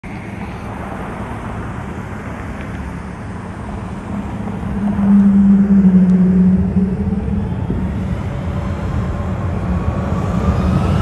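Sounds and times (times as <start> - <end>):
distant jet engines rumbling: 2.9 - 11.0.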